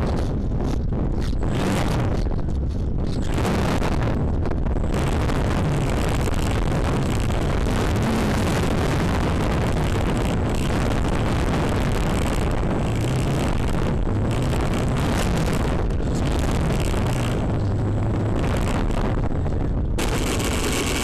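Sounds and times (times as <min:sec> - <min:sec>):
wind on microphone: 0:00.0 - 0:21.0
wheels rolling on pavement: 0:20.0 - 0:21.0.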